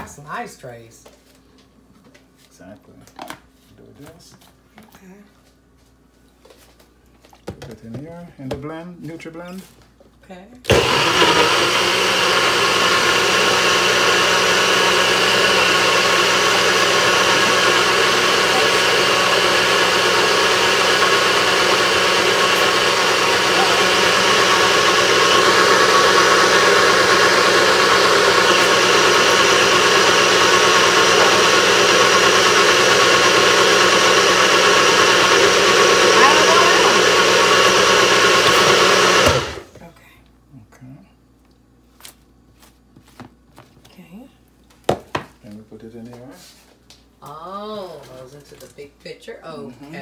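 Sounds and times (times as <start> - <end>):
blender motor running: 10.7 - 39.7.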